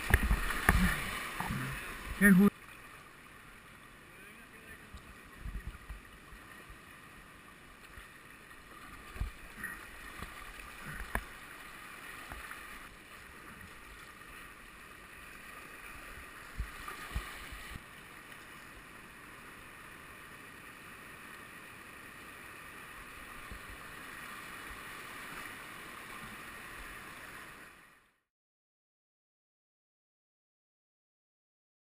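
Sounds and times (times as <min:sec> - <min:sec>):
river water rushing over rapids: 0:00.0 - 0:04.9.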